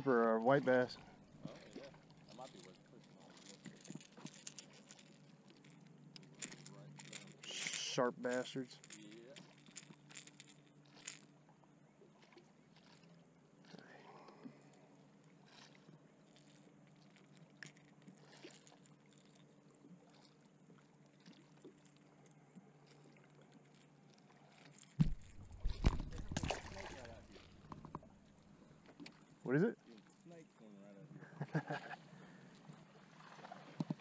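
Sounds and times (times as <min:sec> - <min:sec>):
faint low hum: 0:00.0 - 0:33.3
handling clicks and rustles: 0:01.4 - 0:11.3, 0:22.8 - 0:29.3.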